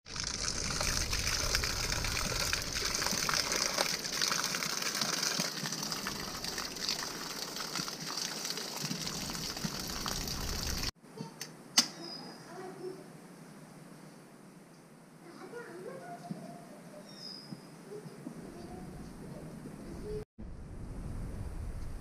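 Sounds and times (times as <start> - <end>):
water pouring and splashing: 0.0 - 11.0.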